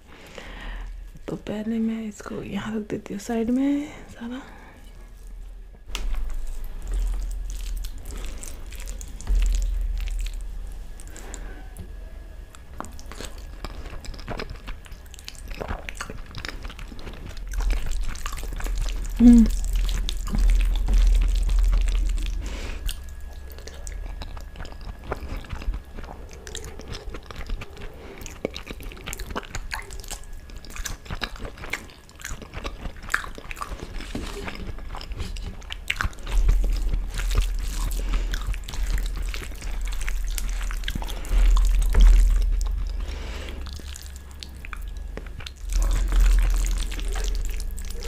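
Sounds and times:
wet chewing: 4.8 - 48.0
rice squished with fingers: 5.8 - 11.8.

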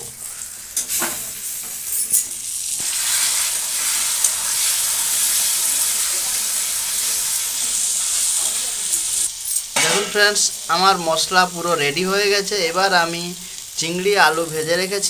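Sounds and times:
masala sizzling in hot oil: 0.0 - 15.0
metal spatula scraping wok: 9.4 - 10.5.

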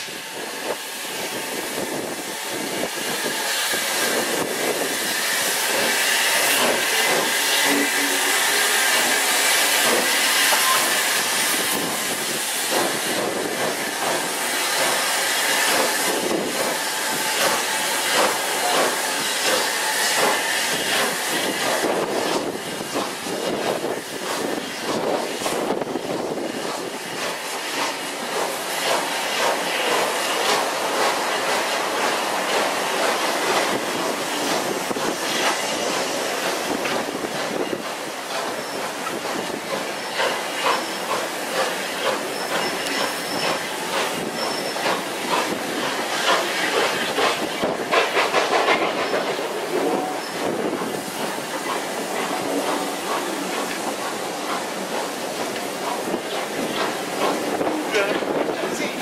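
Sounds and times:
hiss of steam: 0.0 - 59.0
steam locomotive exhaust beats: 0.0 - 59.0.

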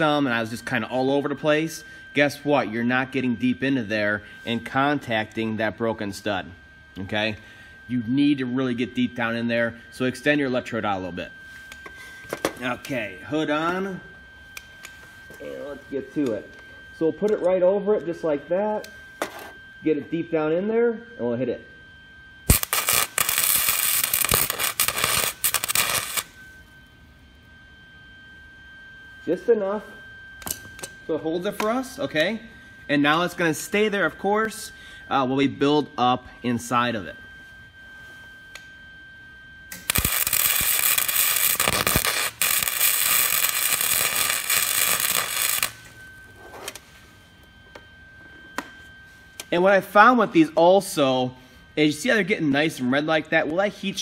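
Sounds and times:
welding arc crackling: 22.4 - 26.4, 39.7 - 46.0.

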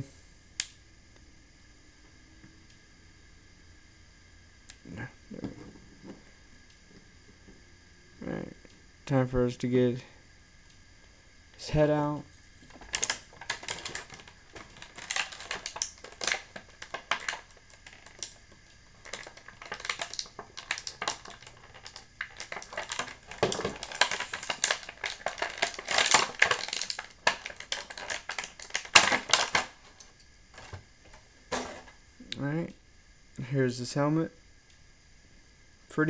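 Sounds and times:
plastic blister packaging crinkling: 12.4 - 32.0.

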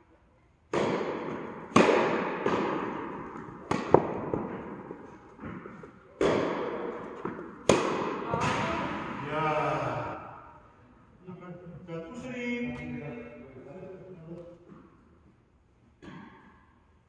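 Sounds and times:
tennis ball hits echoing: 0.7 - 9.3, 16.0 - 16.6.

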